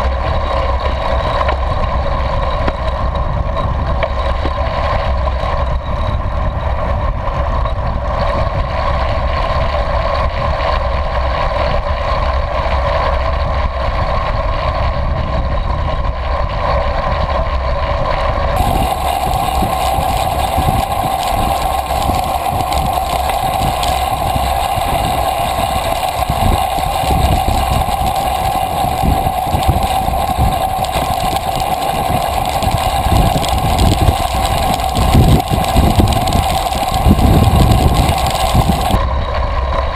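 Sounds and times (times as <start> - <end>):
wind rush: 18.6 - 39.4
constant hum: 18.6 - 39.9.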